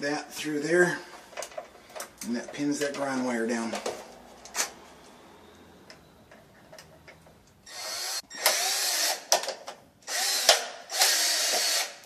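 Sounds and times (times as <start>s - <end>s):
cordless drill driving screw: 7.7s - 9.3s, 10.1s - 12.0s.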